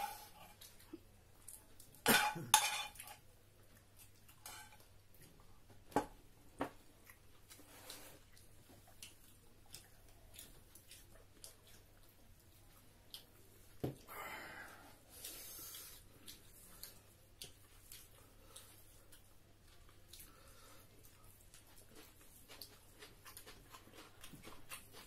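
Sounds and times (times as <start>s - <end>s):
cutlery and dishes clicking: 2.1s - 3.2s.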